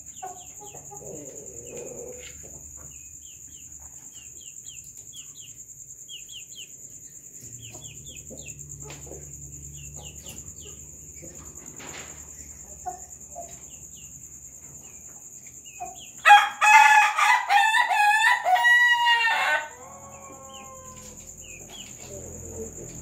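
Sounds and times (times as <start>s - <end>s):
chickens clucking softly: 0.0s - 3.1s, 7.4s - 14.1s, 19.8s - 23.0s
chickens chirping: 0.0s - 23.0s.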